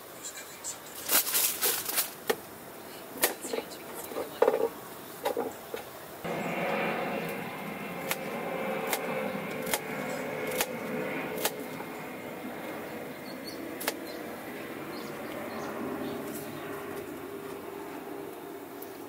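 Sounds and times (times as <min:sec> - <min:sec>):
steady hiss: 0:00.0 - 0:06.3.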